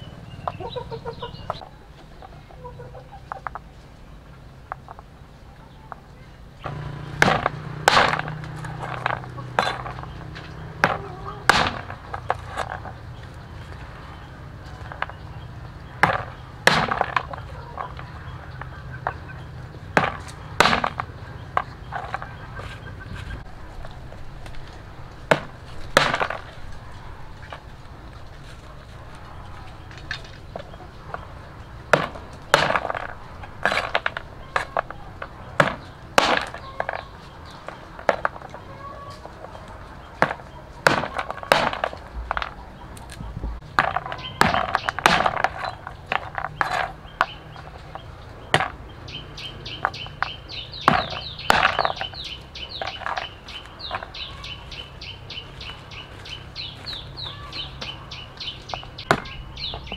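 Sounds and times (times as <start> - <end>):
bird chirping: 0.0 - 59.9
cleaver chopping on wooden board: 6.7 - 10.1, 10.8 - 12.9, 16.0 - 17.3, 20.0 - 22.2, 25.3 - 26.5, 31.9 - 34.9, 35.6 - 37.1, 40.2 - 42.5, 43.8 - 47.7, 49.8 - 53.3, 58.7 - 59.9.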